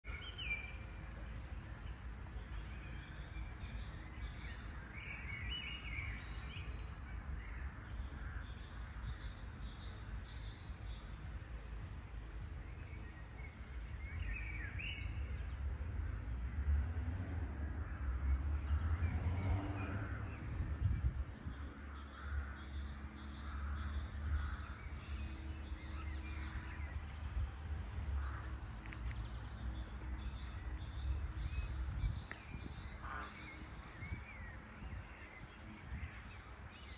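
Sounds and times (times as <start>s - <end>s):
songbirds chirping: 0.0s - 36.9s.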